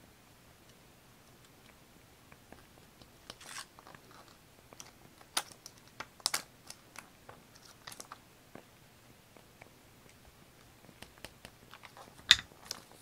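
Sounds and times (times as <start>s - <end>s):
light taps and ticks on paper: 10.0s - 12.0s.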